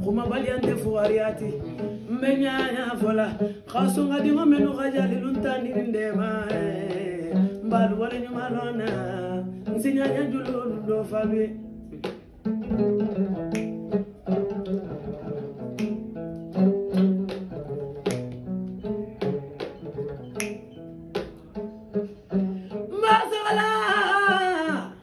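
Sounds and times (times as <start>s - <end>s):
woman singing: 0.0s - 11.9s, 22.8s - 25.0s
plucked strings: 0.0s - 25.0s.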